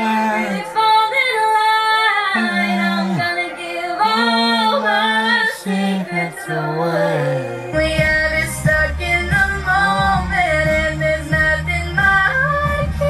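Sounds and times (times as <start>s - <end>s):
woman singing solo: 0.0s - 8.4s.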